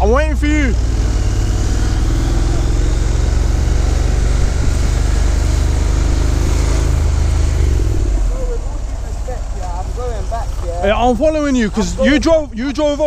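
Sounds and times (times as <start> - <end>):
motorcycle engine cruising: 0.0 - 13.0
wind on microphone: 1.0 - 8.2.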